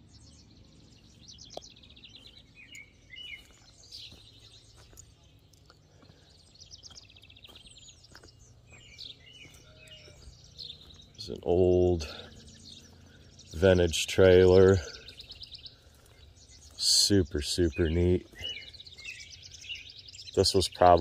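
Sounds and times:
bird chirps: 0.0 - 21.0
bird trilling: 7.8 - 16.8, 17.4 - 21.0.

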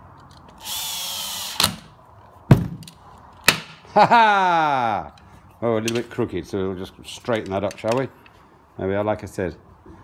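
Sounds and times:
cordless drill driving a screw: 0.6 - 1.8.

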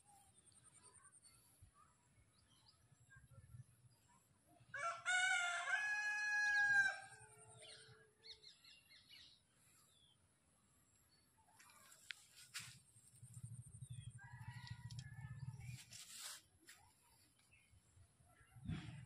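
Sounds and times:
rooster crowing: 4.8 - 7.3.

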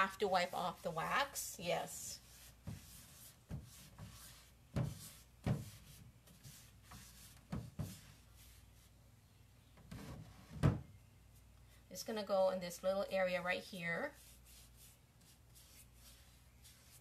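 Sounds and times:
rag brushing wood: 0.0 - 8.9, 14.0 - 17.0.

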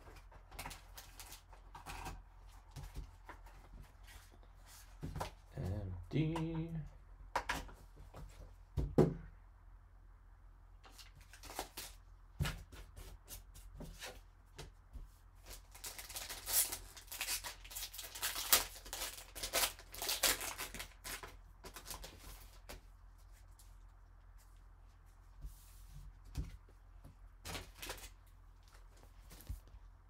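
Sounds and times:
foil wrapper tearing and crinkling: 11.2 - 12.0, 15.5 - 22.7.

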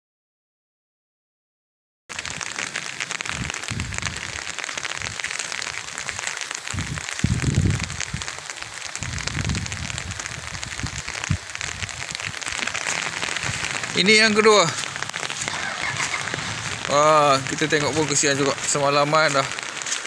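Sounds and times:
light rain pattering: 2.1 - 20.0
low rumbles: 9.0 - 19.8.

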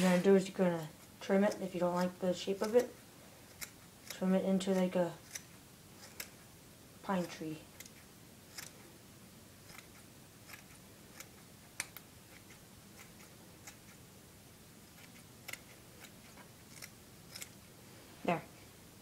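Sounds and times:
scissors snipping: 0.8 - 6.4, 7.2 - 8.8, 9.6 - 14.0, 14.9 - 17.6.

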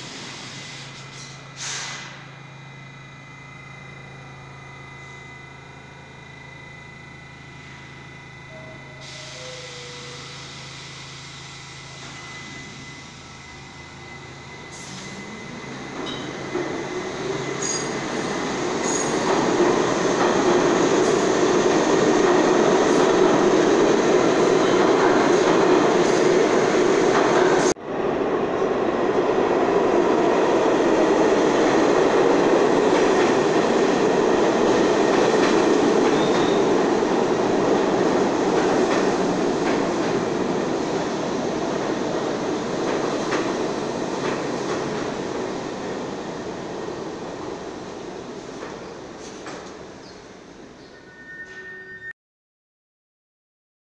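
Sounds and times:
train passing: 0.0 - 51.2
train wheels rumbling: 8.1 - 50.8
high wheel squeals: 8.3 - 19.3, 36.1 - 36.7, 50.8 - 52.2.

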